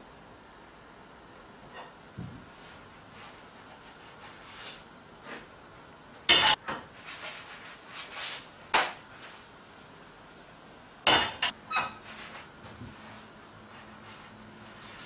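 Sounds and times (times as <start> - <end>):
frying pan clanking on grate: 6.3 - 6.8, 11.1 - 12.0.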